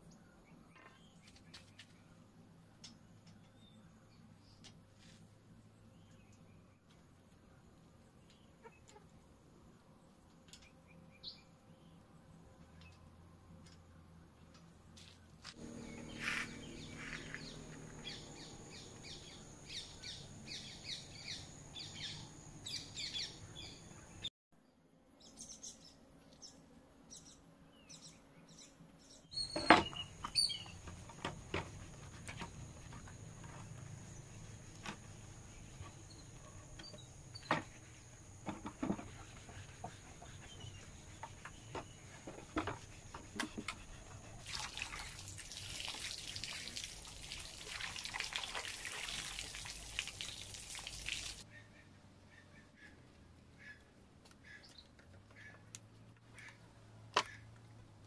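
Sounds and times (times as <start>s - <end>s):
small birds chirping: 15.0s - 24.3s, 25.2s - 31.0s
water splashing and trickling: 44.4s - 51.5s.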